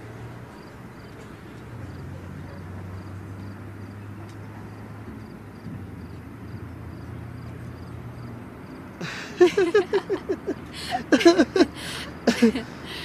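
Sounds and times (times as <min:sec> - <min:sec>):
woman laughing: 0:09.0 - 0:13.0.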